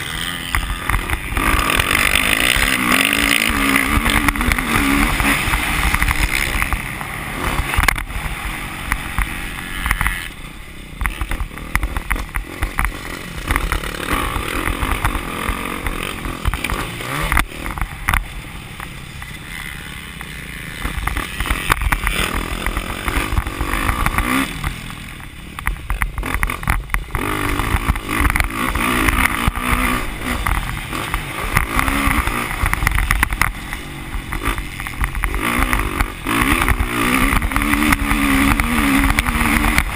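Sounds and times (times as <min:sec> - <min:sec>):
dirt bike engine revving: 0:00.0 - 0:39.9.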